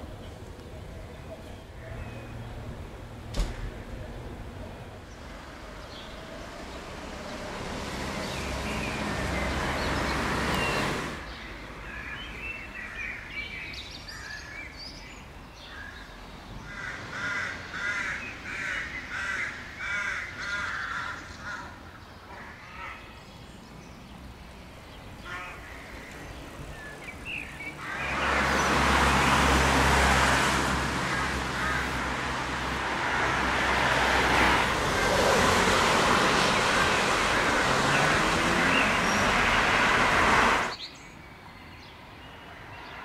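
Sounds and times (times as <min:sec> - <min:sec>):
crow cawing: 0:16.6 - 0:21.8, 0:27.8 - 0:28.2, 0:31.0 - 0:32.2
rush of noise: 0:27.9 - 0:40.8.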